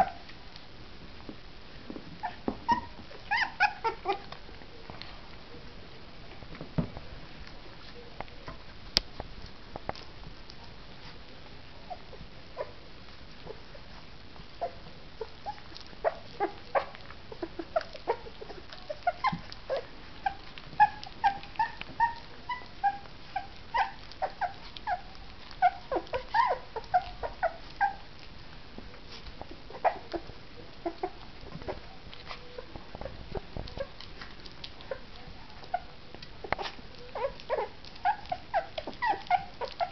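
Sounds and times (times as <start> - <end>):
puppies lapping and smacking: 1.8 - 5.5, 6.2 - 39.9
puppies whimpering squeaks: 2.2 - 4.3, 14.6 - 28.1, 34.8 - 39.9.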